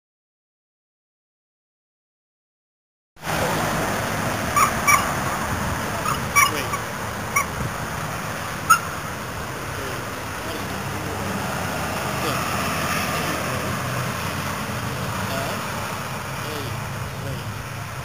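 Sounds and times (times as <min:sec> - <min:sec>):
road traffic: 0:03.2 - 0:18.0.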